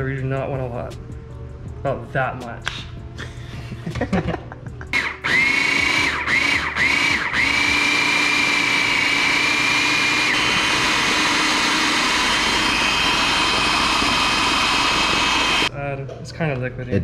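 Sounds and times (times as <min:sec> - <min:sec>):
electric blender whining: 0:05.0 - 0:15.7.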